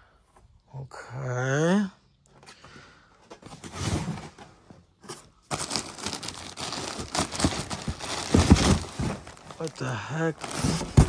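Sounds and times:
rummaging through cardboard box: 3.4s - 11.0s.

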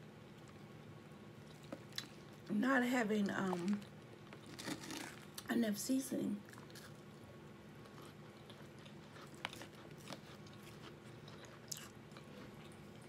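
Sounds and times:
low steady hum: 0.0s - 13.0s
person chewing: 1.4s - 2.5s, 3.6s - 5.5s, 7.8s - 13.0s.

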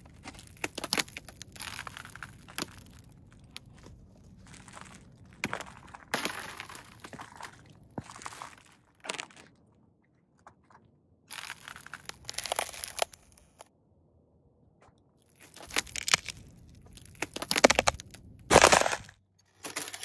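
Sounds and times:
thin ice cracking under boots: 0.1s - 9.5s, 11.3s - 13.7s, 15.2s - 20.0s.

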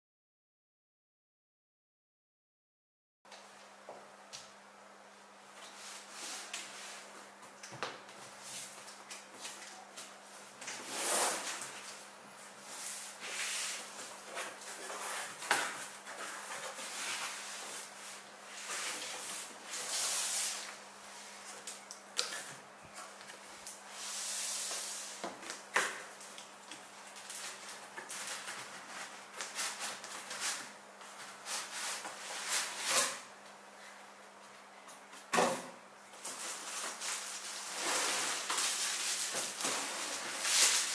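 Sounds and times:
cardboard rustling and scraping: 36.2s - 40.9s.

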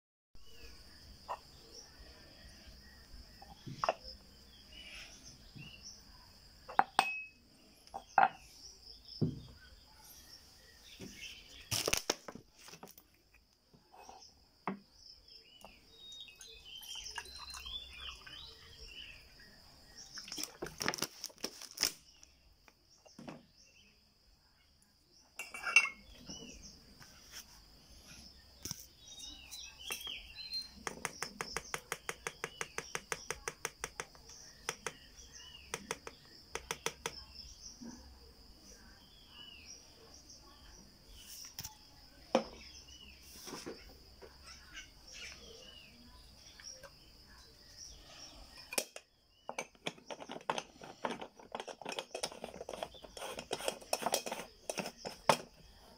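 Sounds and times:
crickets chirping: 0.4s - 55.9s
metal pot parts clinking: 25.4s - 26.0s, 48.7s - 55.5s.

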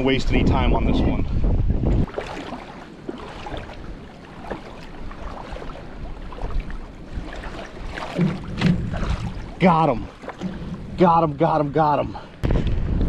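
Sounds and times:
wind buffeting microphone: 0.0s - 13.0s
knocks and splashes in water: 1.9s - 13.0s
small splashes: 2.0s - 10.8s
water moving around legs: 2.0s - 11.0s.

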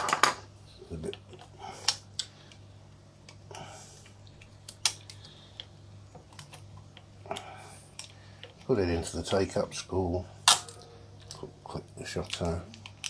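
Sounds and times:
film rustling: 10.4s - 13.0s.

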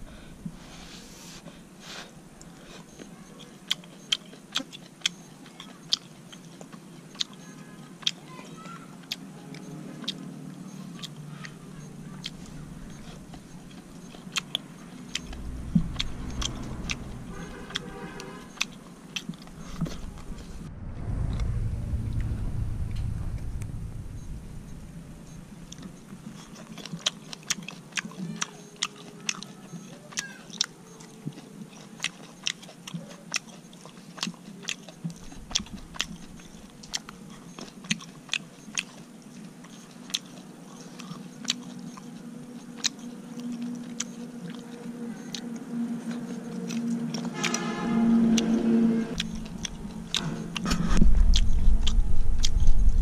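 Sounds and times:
person chewing and crunching: 1.3s - 20.4s, 25.7s - 48.5s, 49.1s - 52.6s
low rumble: 14.8s - 26.8s, 35.1s - 37.2s, 47.8s - 53.0s
brief pitched hum: 19.6s - 26.2s.

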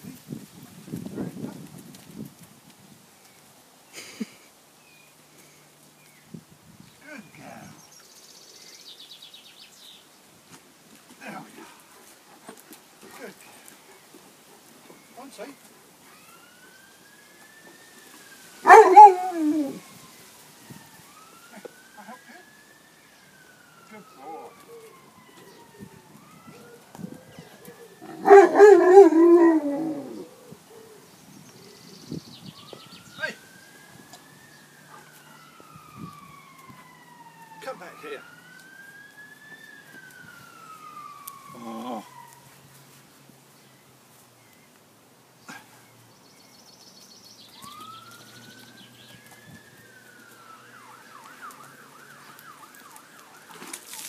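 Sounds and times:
faint siren wailing: 10.9s - 44.6s, 47.0s - 54.0s
dog howling: 18.6s - 19.9s, 26.6s - 30.9s, 41.4s - 42.2s.

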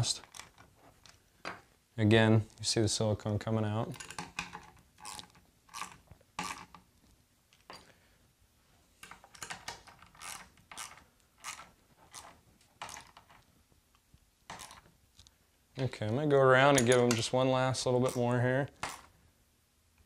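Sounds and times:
hand ratchet clicking: 5.0s - 6.8s, 10.2s - 13.2s, 18.8s - 19.1s.

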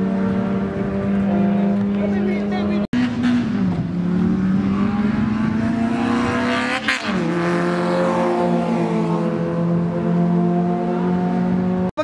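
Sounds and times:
race car engines at full throttle: 0.0s - 12.0s.

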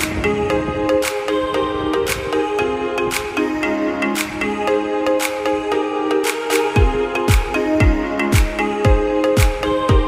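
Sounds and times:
held synth chords: 0.0s - 10.0s
light percussion beat: 6.2s - 10.0s
deep kick drum: 6.8s - 10.0s.

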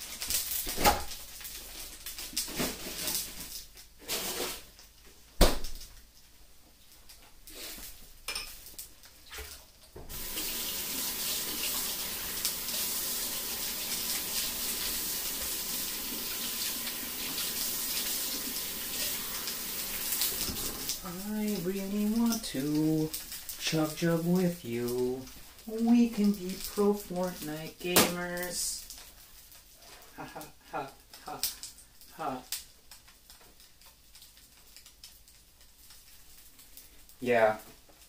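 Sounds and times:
tap water running: 9.4s - 29.0s.

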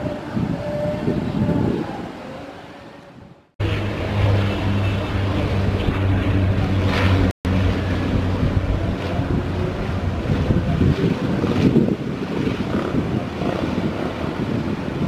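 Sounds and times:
wind noise: 0.0s - 15.0s
propeller drone: 3.6s - 15.0s.

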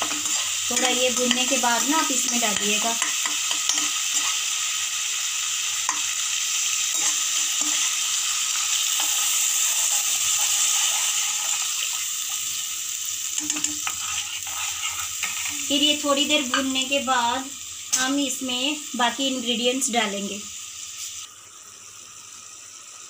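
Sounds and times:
steel spoon scraping and tapping: 0.0s - 1.6s, 2.2s - 4.4s, 6.9s - 7.9s, 13.4s - 15.6s
paste sizzling in hot oil: 0.0s - 23.0s.

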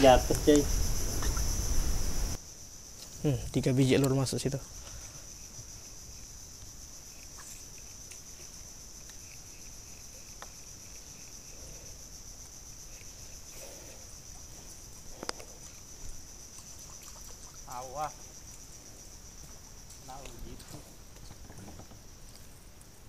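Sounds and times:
faint insect drone: 0.0s - 23.0s.

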